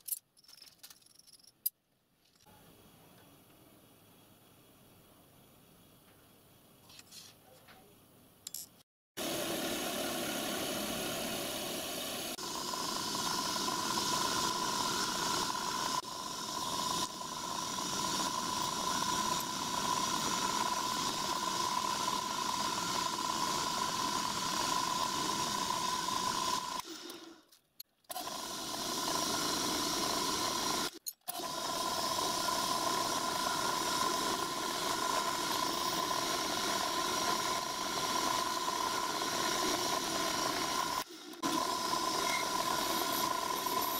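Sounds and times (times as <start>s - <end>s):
milling machine cutting brass: 28.2s - 43.9s.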